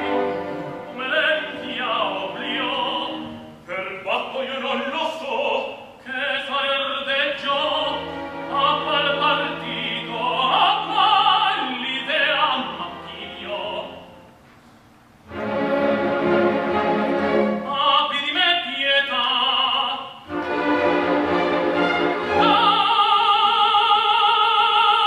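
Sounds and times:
orchestral accompaniment: 0.0 - 4.0, 6.8 - 14.4, 15.2 - 18.2, 20.3 - 24.0
operatic singing: 0.0 - 14.2, 16.5 - 25.0.

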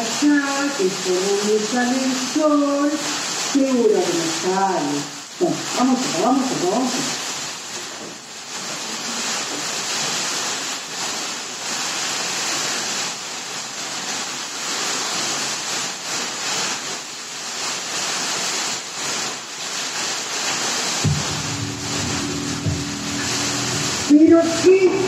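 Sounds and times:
surf-like rushing noise: 19.8 - 25.0.

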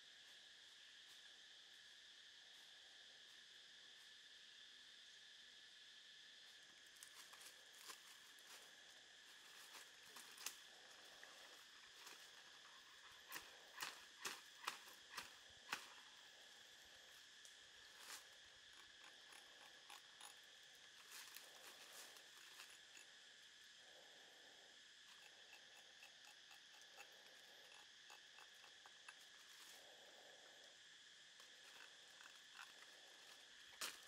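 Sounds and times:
insect drone: 0.0 - 34.0
dry leaves and twigs snapping: 9.4 - 16.2, 31.4 - 34.0.

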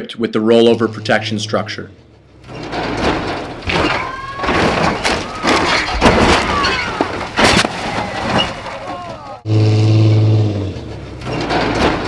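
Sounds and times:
truck crashing impacts: 0.6 - 12.0
dirt and debris rushing: 2.4 - 9.5.

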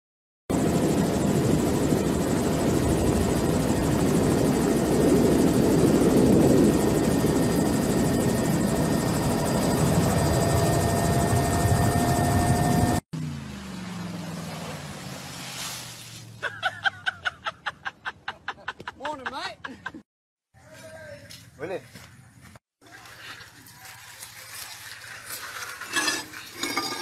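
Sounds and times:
helicopter rotor chop: 0.5 - 13.0
turbine whine: 0.5 - 15.3.

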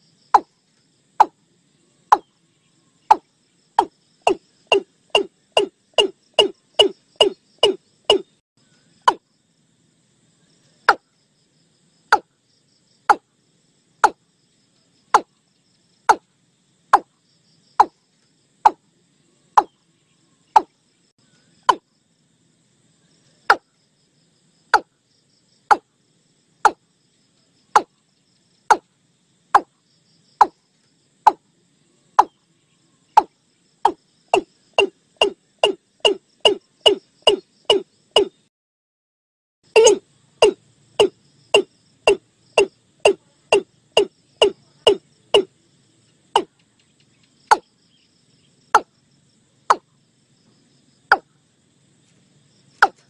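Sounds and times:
bird calling short sharp notes: 34.4 - 38.4, 39.8 - 42.2.

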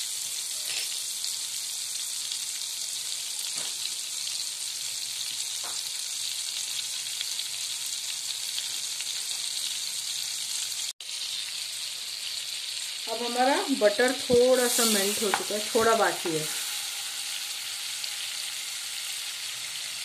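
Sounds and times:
butter sizzling in hot oil: 0.0 - 20.0.

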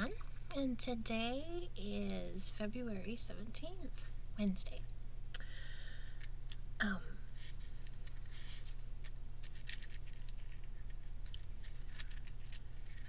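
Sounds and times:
steady low hum: 0.0 - 13.0
clicks and rustles of objects: 7.5 - 13.0.

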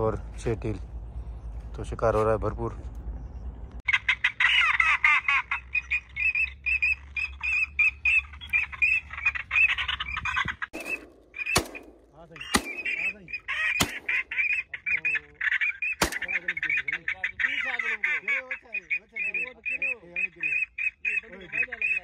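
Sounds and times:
electronic duck calls: 12.4 - 22.0.

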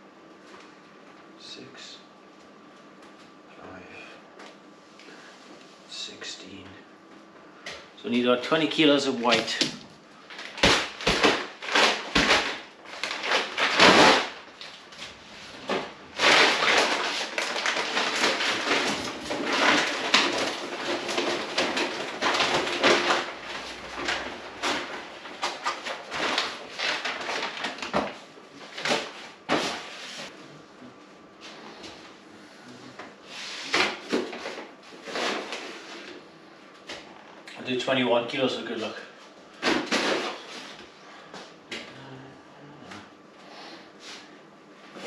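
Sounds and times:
paper sack rustling: 10.3 - 27.9
knocks and clatter: 15.0 - 27.6.

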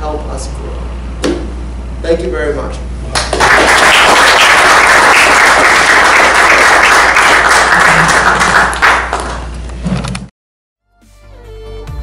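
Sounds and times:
audience applauding: 3.1 - 9.6.

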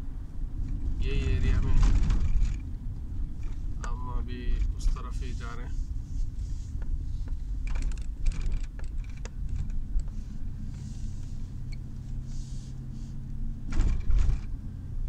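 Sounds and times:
car engine and road rumble: 0.0 - 15.0
light clicks and rattles: 0.6 - 5.6, 6.8 - 12.2.

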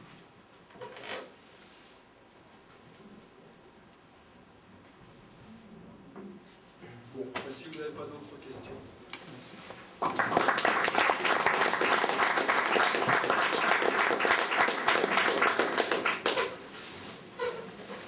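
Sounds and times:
audience applauding: 10.0 - 16.6.

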